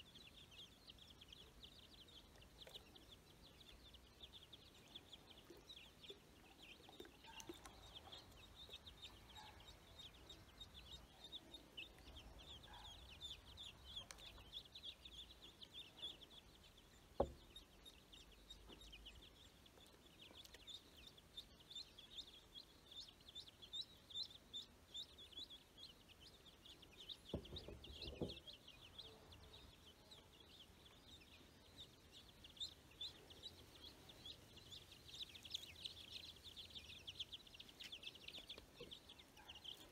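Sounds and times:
ducklings and chicks peeping: 0.0s - 39.9s.

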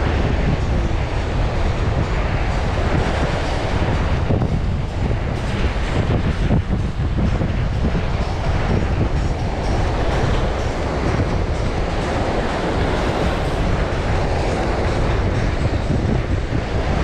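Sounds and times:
wind buffeting microphone: 0.0s - 17.0s
small waves washing on beach: 7.3s - 17.0s.

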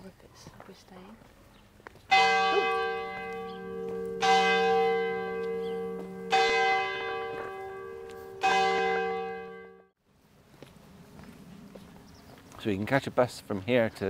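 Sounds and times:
church bell tolling: 2.1s - 10.0s.

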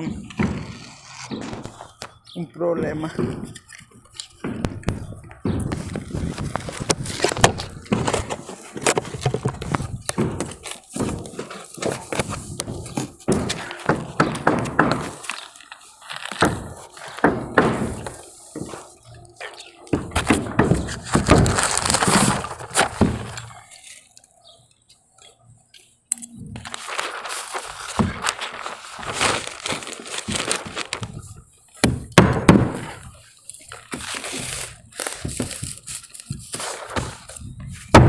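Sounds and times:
knocks and cracks on roof: 0.0s - 1.8s, 4.4s - 15.4s, 16.3s - 18.8s, 19.9s - 23.5s, 27.9s - 33.1s, 36.3s - 38.0s.

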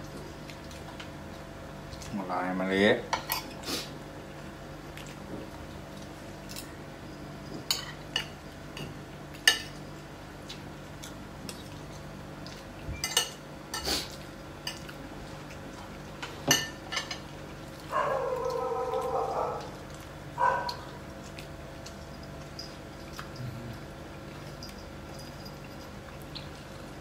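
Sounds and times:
faint steady hum: 0.0s - 27.0s
cutlery clinking on plates: 7.6s - 9.7s.

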